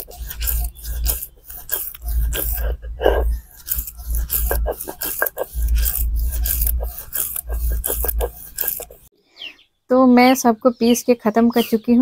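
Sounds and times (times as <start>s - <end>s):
stone grinding on stone: 0.0s - 9.1s.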